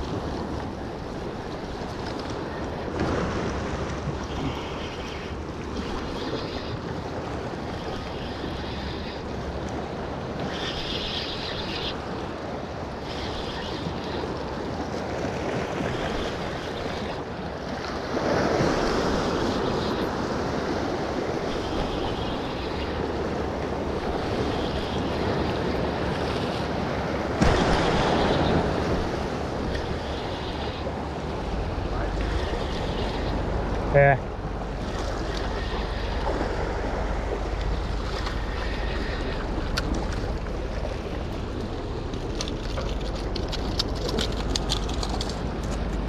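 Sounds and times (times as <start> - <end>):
waves washing against rock: 0.0 - 46.0
wind buffeting microphone: 13.8 - 46.0.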